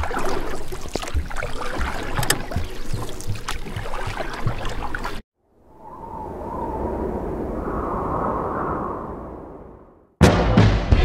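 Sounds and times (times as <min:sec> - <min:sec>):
underwater bubbling and splashing: 0:00.0 - 0:05.2
underwater clicks: 0:00.0 - 0:05.2.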